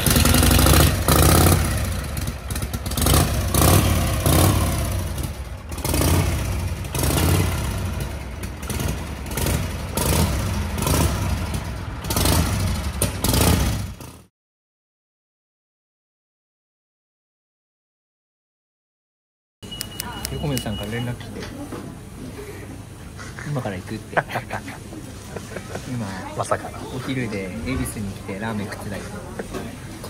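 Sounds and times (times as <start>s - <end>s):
motorcycle engine revving: 0.0s - 14.3s.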